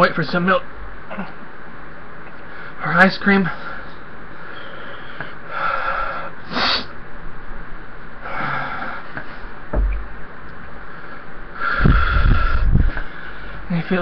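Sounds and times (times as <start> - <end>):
man breathing hard and sniffing: 3.6 - 6.9, 8.2 - 9.6, 10.8 - 13.6
low thump: 9.7 - 10.2.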